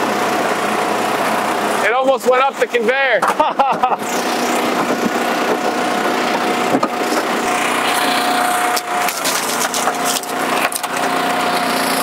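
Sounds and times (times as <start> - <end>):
power unit whining: 0.0 - 12.0
wood cracking and splintering: 8.7 - 11.1.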